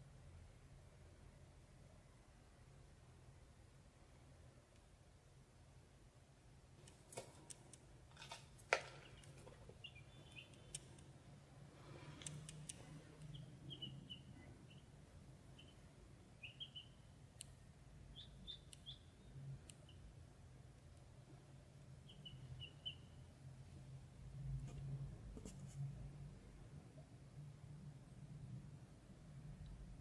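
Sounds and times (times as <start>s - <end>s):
ducklings peeping: 8.9s - 10.8s, 12.2s - 15.8s, 16.4s - 17.0s, 18.1s - 20.0s, 22.0s - 23.2s.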